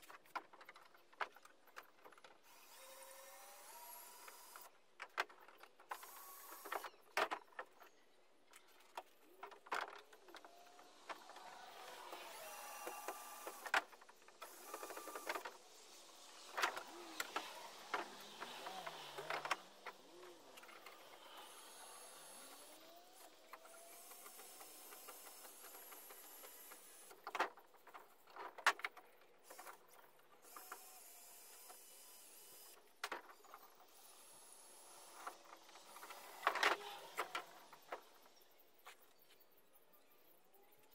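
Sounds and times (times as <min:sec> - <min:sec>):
small power tool running: 0:02.5 - 0:04.7, 0:10.6 - 0:13.8, 0:14.4 - 0:15.6, 0:16.7 - 0:27.1.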